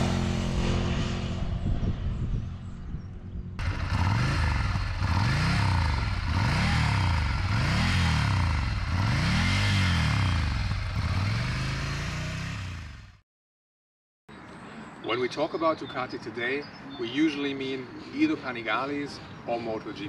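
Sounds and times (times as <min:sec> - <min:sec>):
motorcycle engine revving: 0:00.0 - 0:13.2.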